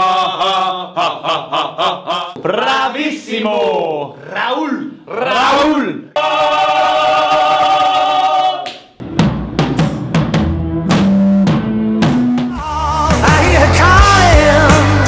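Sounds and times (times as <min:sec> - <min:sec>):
voices holding a long note: 0:05.1 - 0:08.6
bass line: 0:09.0 - 0:15.0
drum kit hits: 0:09.0 - 0:15.0.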